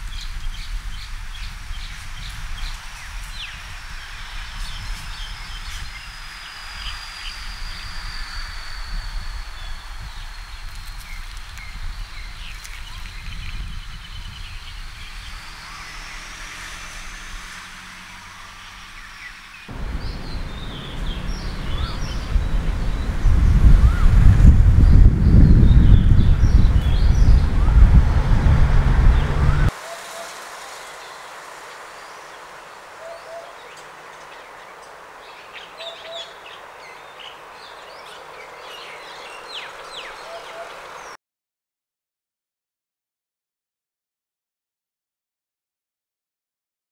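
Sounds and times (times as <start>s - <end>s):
bird low hooting song: 0.0s - 41.2s
small birds chirping: 0.0s - 41.2s
background hiss: 17.8s - 23.8s, 29.3s - 41.2s
low rumble: 19.7s - 29.7s.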